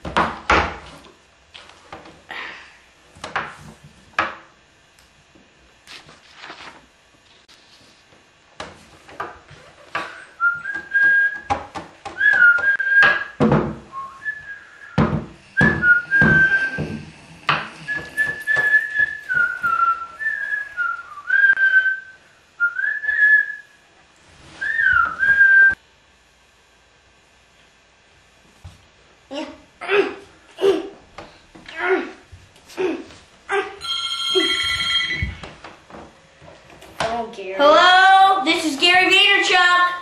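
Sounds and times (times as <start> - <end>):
boy whistling a tune: 10.3 - 11.5, 12.2 - 15.0, 15.6 - 17.0, 17.8 - 23.8, 24.6 - 25.8.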